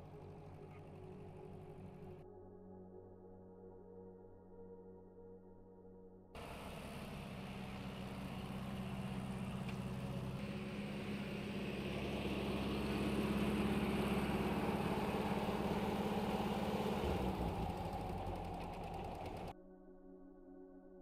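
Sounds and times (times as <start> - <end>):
tractor diesel engine running: 0.0 - 2.2, 6.4 - 19.5
rotary mower cutting grass: 6.4 - 19.5.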